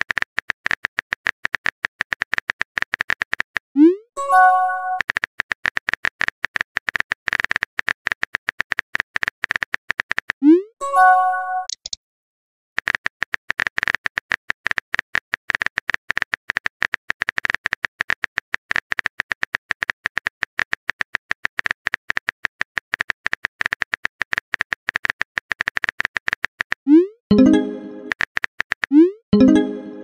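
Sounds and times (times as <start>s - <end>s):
keyboard typing clicks: 11.6s - 12.0s.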